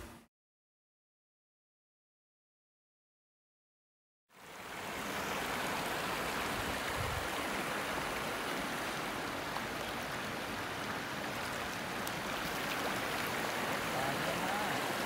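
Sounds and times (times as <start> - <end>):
river flowing over stones: 4.4 - 15.0.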